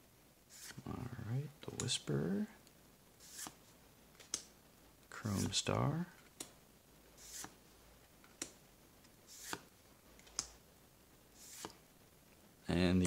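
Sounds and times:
playing cards flipped by hand: 3.2s - 3.6s, 9.3s - 10.5s, 11.4s - 11.8s.

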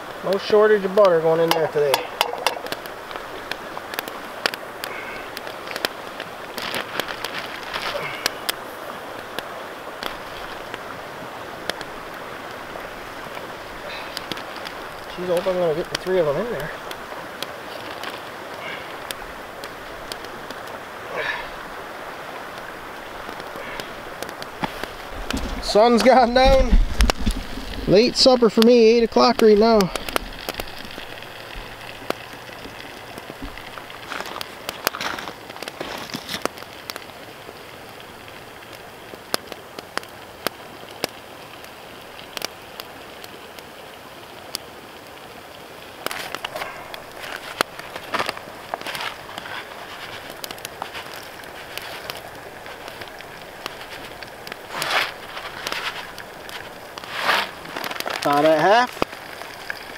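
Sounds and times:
wood fire crackling and popping: 0.0s - 59.9s
fish sizzling in a pan: 28.4s - 35.8s.

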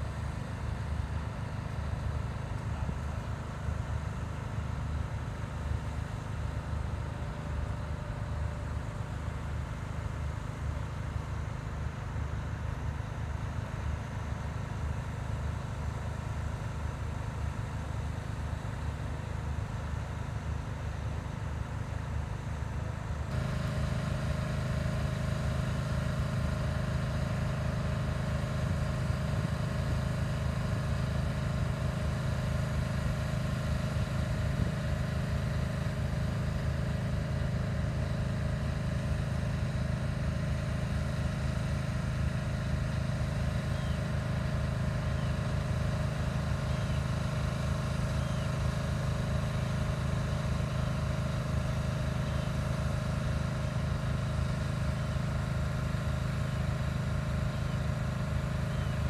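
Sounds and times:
low mechanical drone: 0.0s - 59.0s
faint high bird calls: 43.7s - 44.1s, 46.6s - 47.1s, 48.1s - 48.6s, 58.7s - 59.0s.

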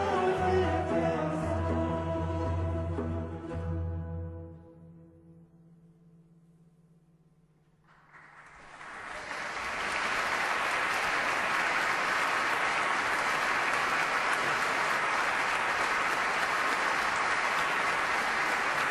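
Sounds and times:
audience applauding: 7.9s - 18.9s.

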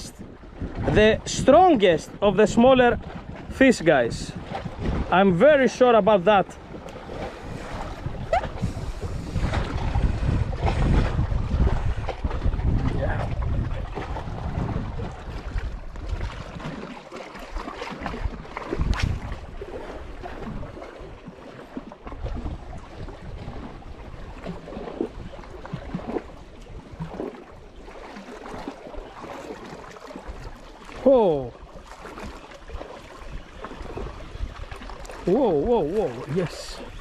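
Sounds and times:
sea water lapping against rocks: 0.0s - 37.0s
wind buffeting microphone: 0.0s - 37.0s.

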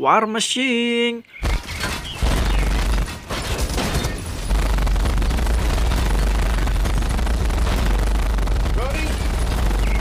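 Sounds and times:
rapid machine-gun fire: 1.4s - 10.0s
heavy low rumble: 4.5s - 10.0s.

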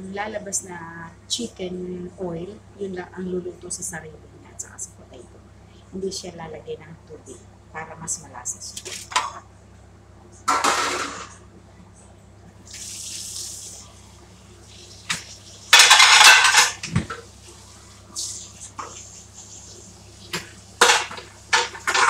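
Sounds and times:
dishes knocking and clinking: 10.5s - 11.4s, 15.7s - 17.2s, 20.4s - 22.0s.

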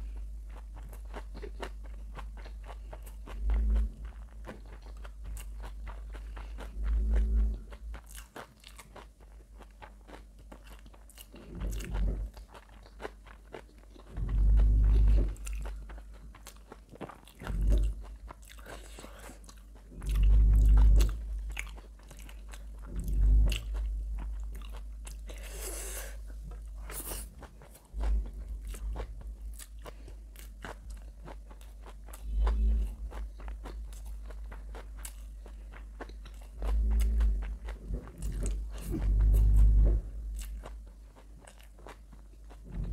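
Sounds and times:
crunching and chewing: 0.0s - 42.9s
dull low thumps: 14.2s - 15.8s, 17.4s - 18.1s, 20.0s - 21.5s, 22.7s - 25.1s, 36.1s - 40.8s, 42.6s - 42.9s.

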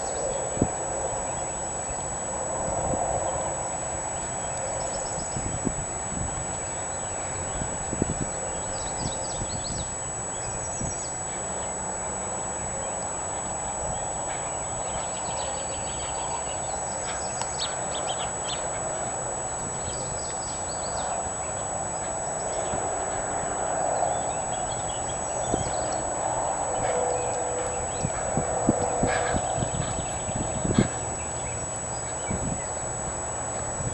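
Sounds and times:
outdoor background hiss: 0.0s - 33.9s
birds chirping: 6.4s - 18.9s.

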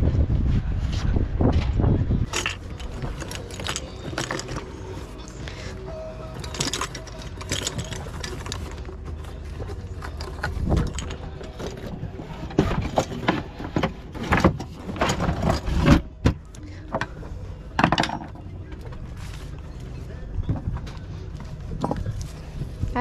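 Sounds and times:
low steady rumble: 0.0s - 23.0s
gear knocking and rattling: 2.3s - 5.2s, 6.3s - 17.2s.

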